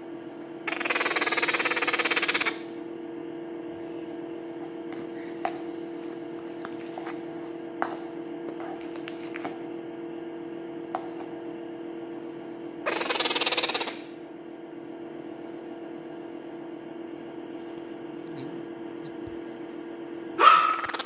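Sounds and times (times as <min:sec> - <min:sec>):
steady low hum: 0:00.0 - 0:21.0
parrot begging call: 0:00.7 - 0:02.6, 0:12.9 - 0:14.1, 0:20.4 - 0:21.0.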